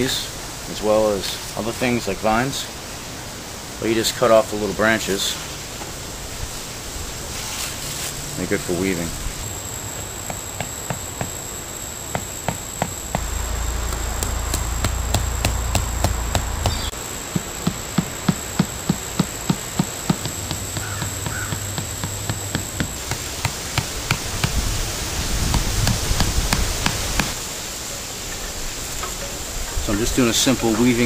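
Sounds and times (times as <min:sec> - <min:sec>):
insect buzz: 0:04.8 - 0:31.0
hatchet knocking wooden stakes: 0:16.6 - 0:24.6.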